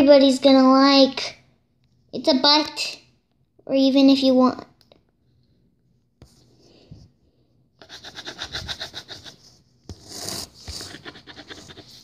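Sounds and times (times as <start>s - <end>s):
pen scribbling on paper: 7.8s - 12.0s.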